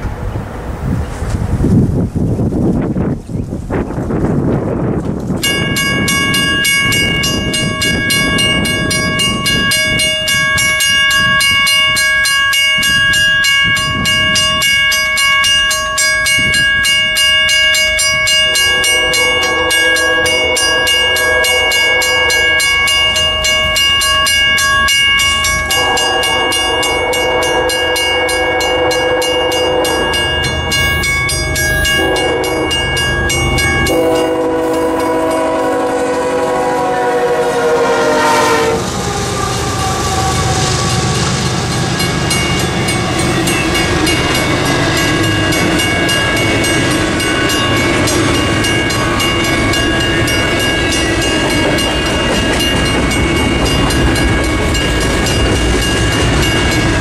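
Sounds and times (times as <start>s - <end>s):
mechanical crossing bell ringing: 5.4s - 35.6s, 41.7s - 57.0s
locomotive horn blasts: 18.0s - 23.7s, 25.4s - 52.1s.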